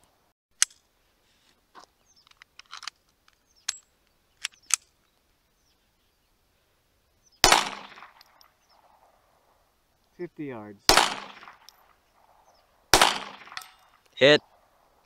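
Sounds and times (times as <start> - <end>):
pistol shot with echo: 7.4 - 9.2, 10.9 - 14.7
pistol handling clicks: 10.9 - 12.3, 13.0 - 14.1.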